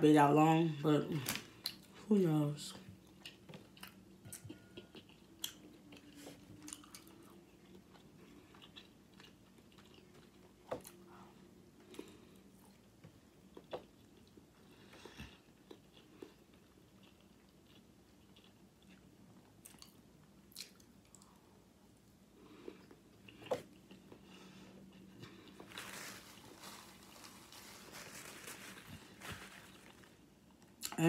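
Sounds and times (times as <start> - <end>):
chewing: 3.0 - 21.5
small crunches: 25.2 - 30.2.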